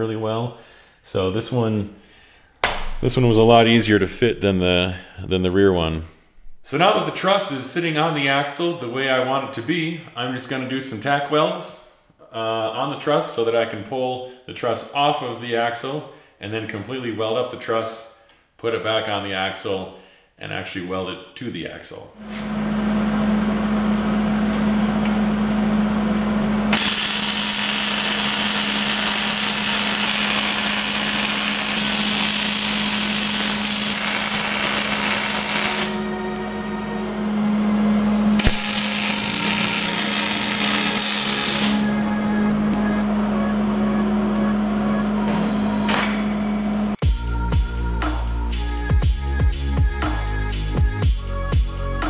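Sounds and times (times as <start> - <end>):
welding arc crackling: 26.7 - 36.0, 38.4 - 41.9
steady low tone: 35.9 - 38.6, 41.8 - 47.0.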